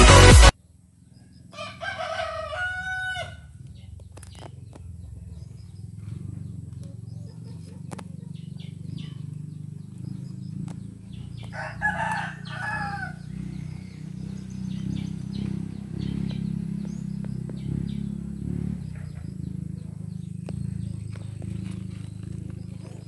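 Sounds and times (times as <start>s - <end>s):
rooster crowing: 1.5s - 3.6s, 11.3s - 13.8s
steady low rumble: 2.3s - 23.0s.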